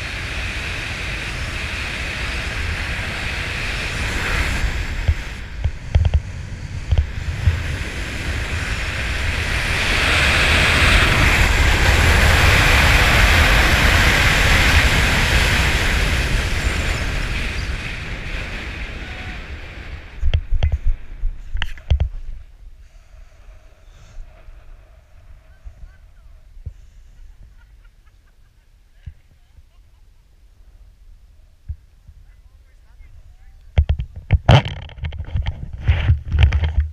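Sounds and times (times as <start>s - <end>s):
wind rushing over microphone: 0.0s - 27.7s, 31.6s - 36.9s.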